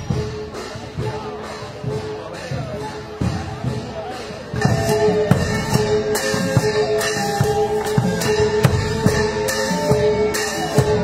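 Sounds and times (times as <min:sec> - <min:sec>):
barrel drum beats: 0:00.0 - 0:11.0
held melodic notes: 0:00.0 - 0:11.0
hand cymbals crashing: 0:04.5 - 0:11.0.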